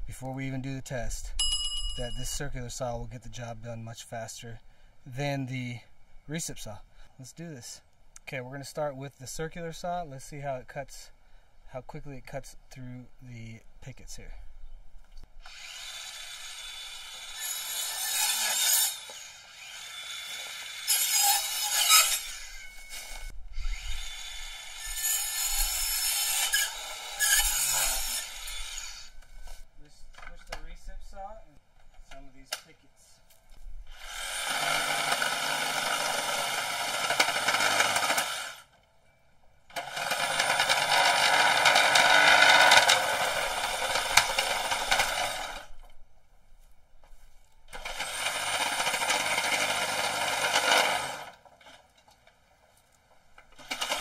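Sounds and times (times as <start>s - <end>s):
saw cutting through wood: 15.4s - 29.2s, 33.9s - 38.7s, 39.7s - 45.7s, 47.7s - 51.4s, 53.6s - 54.0s.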